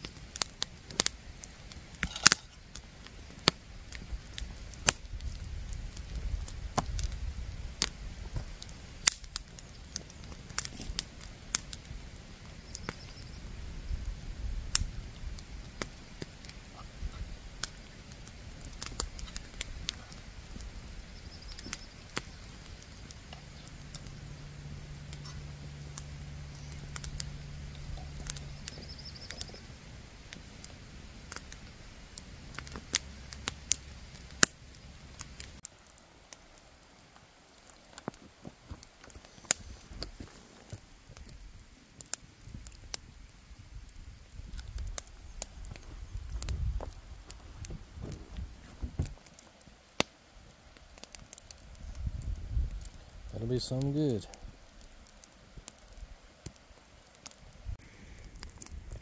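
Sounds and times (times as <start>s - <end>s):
wood fire crackling and popping: 0.0s - 59.0s
low steady hum: 13.0s - 36.2s.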